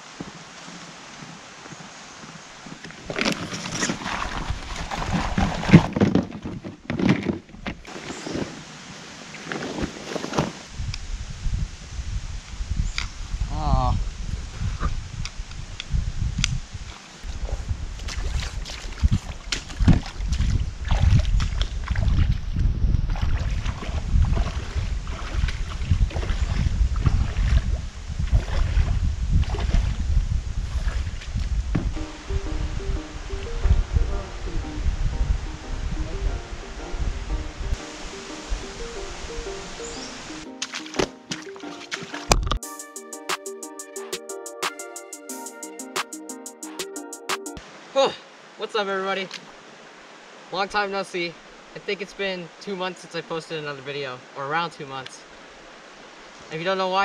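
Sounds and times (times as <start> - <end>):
footsteps on creek stones: 1.2 - 8.6, 17.9 - 22.4, 40.4 - 42.6
wading through shallow water: 3.0 - 6.0, 16.9 - 34.7, 37.8 - 42.6
wind buffeting microphone: 10.7 - 39.8.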